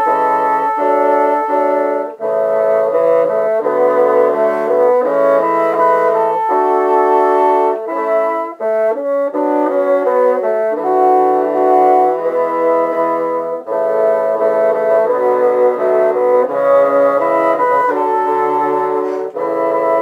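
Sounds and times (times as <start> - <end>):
bassoons playing slow melody: 0.0 - 20.0.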